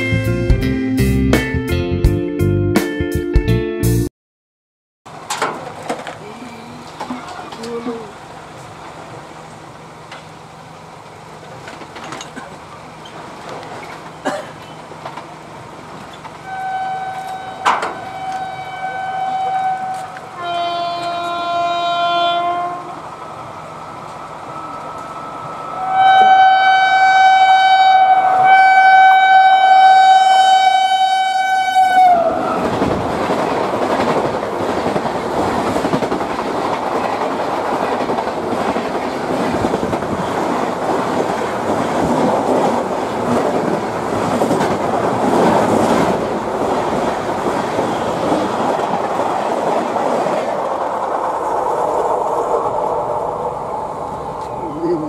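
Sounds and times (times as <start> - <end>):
train coaches and wheels clattering: 5.1 - 26.9, 32.0 - 55.0
locomotive air horn blasts: 16.4 - 23.0, 25.8 - 32.4.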